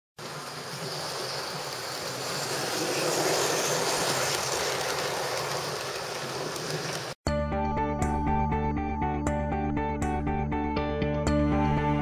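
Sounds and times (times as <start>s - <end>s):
model train rolling on track: 0.2s - 7.2s.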